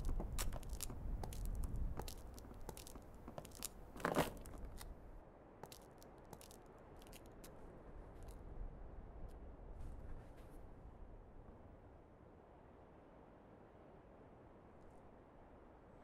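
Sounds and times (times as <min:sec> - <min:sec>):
footsteps crunching on concrete: 0:00.0 - 0:07.6.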